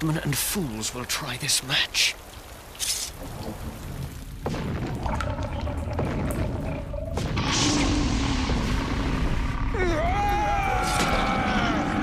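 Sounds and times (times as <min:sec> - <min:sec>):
rushing fire blast: 0:03.2 - 0:10.1
deep rumbling: 0:03.2 - 0:12.0.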